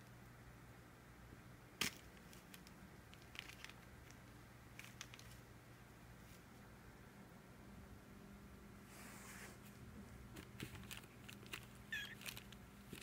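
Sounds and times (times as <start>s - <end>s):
faint steady hum: 0.0s - 13.0s
faint clicks and rustles: 1.8s - 5.5s, 9.6s - 13.0s.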